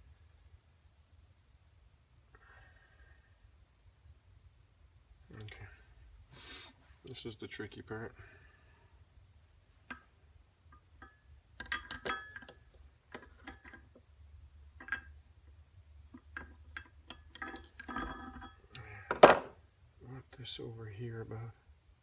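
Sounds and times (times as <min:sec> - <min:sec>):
metal parts clicking and clinking: 0:11.0 - 0:14.0, 0:14.8 - 0:15.2, 0:16.1 - 0:19.2.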